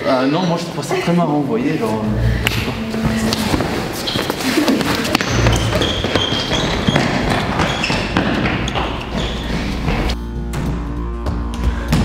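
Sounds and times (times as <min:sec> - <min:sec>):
rubber soles squeaking: 0:02.5 - 0:10.2
footsteps running on tiled floor: 0:02.9 - 0:10.2.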